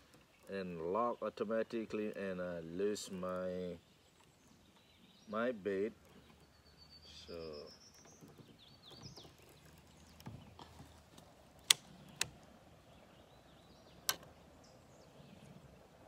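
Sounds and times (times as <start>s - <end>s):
faint bird chirps: 3.1s - 11.0s.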